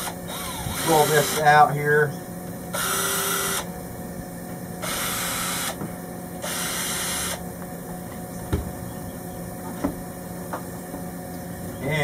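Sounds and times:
cordless drill running: 0.0 - 1.6, 2.7 - 3.7, 4.8 - 5.8, 6.4 - 7.4.

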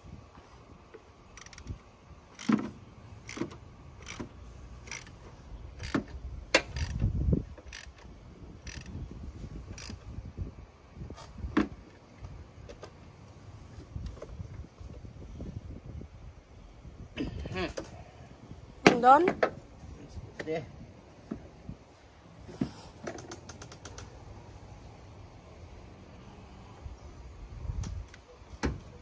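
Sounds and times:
socket ratchet clicking: 1.3 - 2.6, 3.2 - 5.2, 5.8 - 9.0, 9.7 - 10.0.

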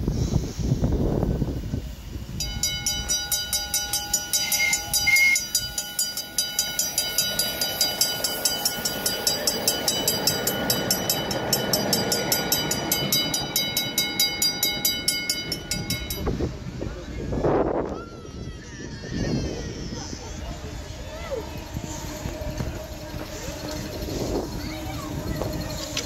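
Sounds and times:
rail vehicle clicking over track: 0.4 - 17.9, 21.1 - 26.0
steady high tone: 2.3 - 16.9
short high notes: 2.5 - 7.4.

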